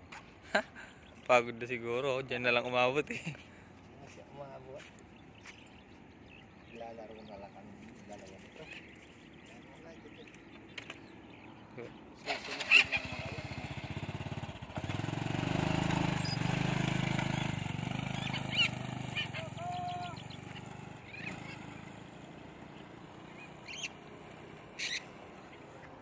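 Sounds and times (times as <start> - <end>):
motorcycle engine pulling away: 12.2 - 26.0
short high calls: 18.1 - 21.7.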